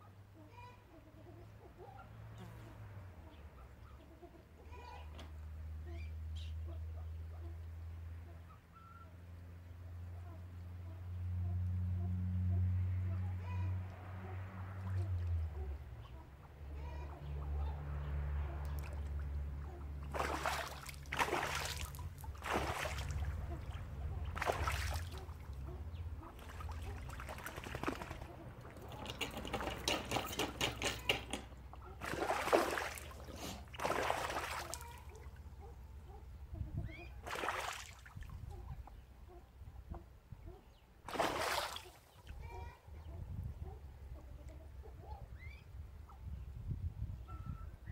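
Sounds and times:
duck splashing and flapping: 0:18.6 - 0:35.3, 0:37.2 - 0:38.2, 0:41.1 - 0:42.1.

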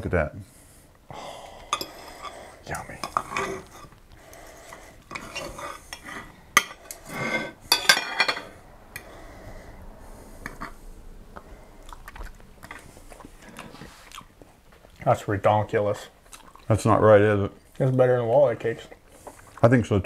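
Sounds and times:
cutlery scraping and clinking plates: 0:01.8 - 0:02.4, 0:03.0 - 0:04.0, 0:04.6 - 0:08.6.

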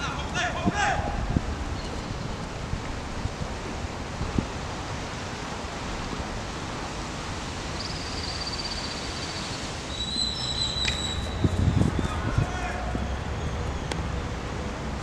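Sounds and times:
wind on microphone: 0:00.0 - 0:07.8, 0:10.6 - 0:14.1
high whistle-like tone: 0:09.9 - 0:11.9.

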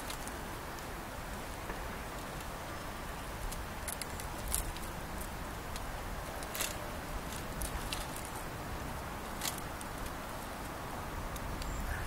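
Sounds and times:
steady rushing background noise: 0:00.0 - 0:12.0.

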